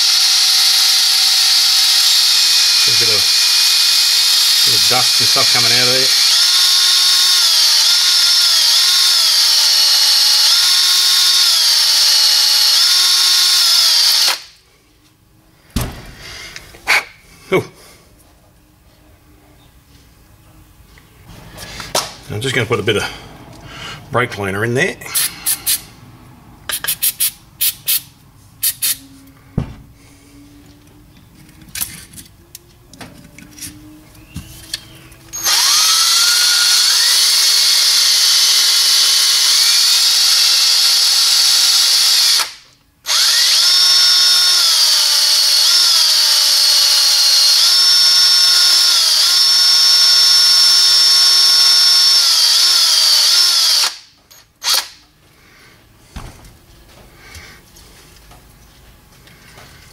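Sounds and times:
cordless drill spinning hone: 0.0s - 14.5s, 35.3s - 55.0s.

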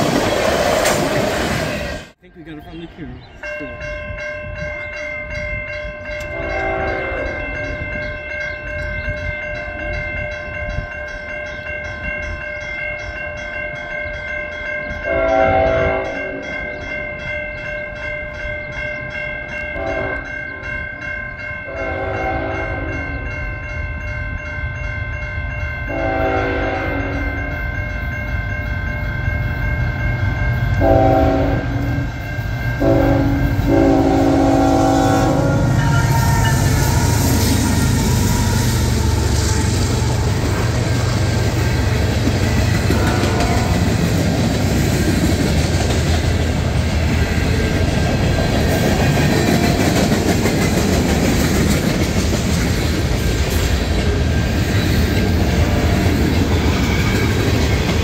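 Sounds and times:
crossing bells ringing: 1.7s - 58.0s
locomotive air horn: 6.3s - 7.5s, 15.1s - 16.2s, 19.8s - 20.3s, 21.7s - 23.1s, 25.9s - 27.4s, 30.8s - 32.2s, 32.8s - 40.3s, 42.9s - 43.9s
locomotive engines rumbling: 14.4s - 58.0s.

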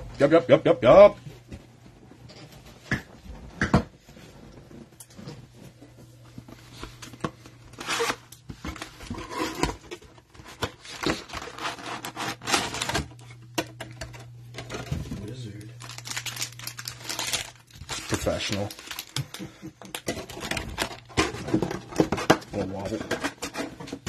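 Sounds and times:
cellophane rustling and crinkling: 5.1s - 24.0s
cardboard scraping: 7.7s - 13.1s.

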